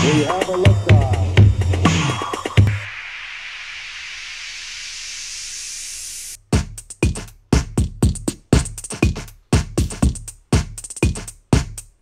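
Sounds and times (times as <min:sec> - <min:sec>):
electronic dance music: 0:00.0 - 0:11.9
punchy kick drums: 0:06.4 - 0:12.0.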